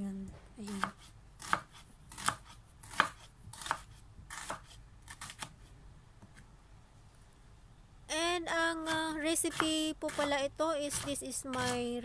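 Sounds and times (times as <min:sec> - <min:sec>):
knife chopping on wooden board: 0:00.7 - 0:05.6, 0:09.5 - 0:11.8.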